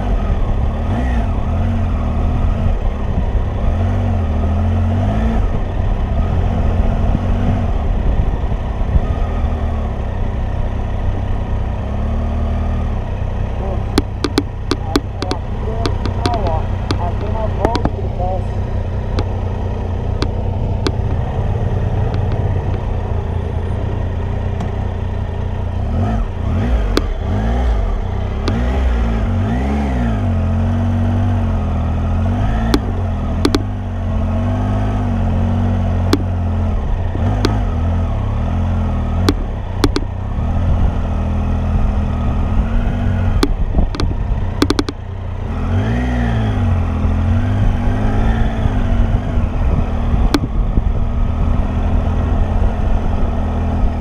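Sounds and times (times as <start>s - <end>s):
motorcycle engine revving: 0.0s - 54.0s
sharp clicks: 13.8s - 18.0s, 20.2s - 21.2s, 22.1s - 22.9s, 28.4s - 28.7s, 32.6s - 33.8s, 39.2s - 40.1s, 43.4s - 45.0s.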